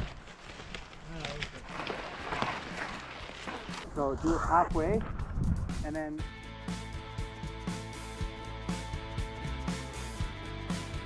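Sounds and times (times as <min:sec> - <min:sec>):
background music with steady beat: 0:04.8 - 0:11.0.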